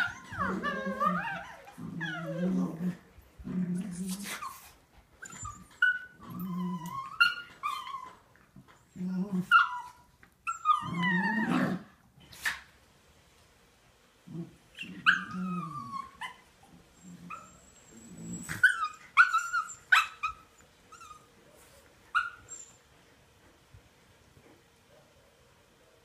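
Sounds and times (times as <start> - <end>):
puppies yipping and whining: 0.0 - 2.7, 4.3 - 8.3, 9.5 - 11.8, 14.8 - 21.4, 22.1 - 22.9
puppies growling: 0.0 - 12.0, 14.2 - 21.3.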